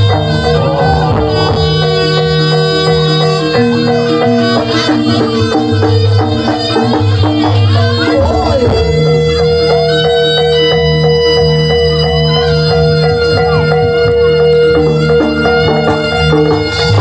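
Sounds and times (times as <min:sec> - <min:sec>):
percussion: 0:00.0 - 0:17.0
reedy wind instrument: 0:00.0 - 0:17.0.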